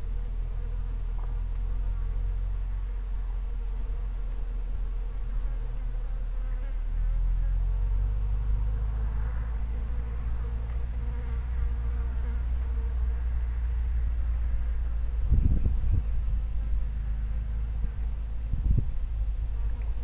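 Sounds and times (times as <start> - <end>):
low buzzing hum: 0.0 - 20.0
deep rumble: 13.2 - 20.0.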